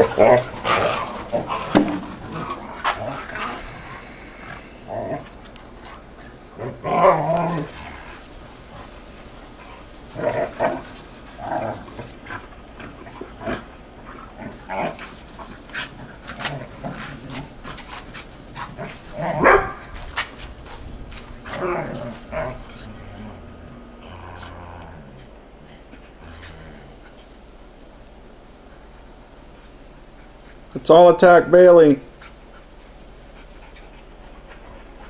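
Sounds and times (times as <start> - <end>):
dogs barking: 0.0 - 8.2, 18.5 - 20.2.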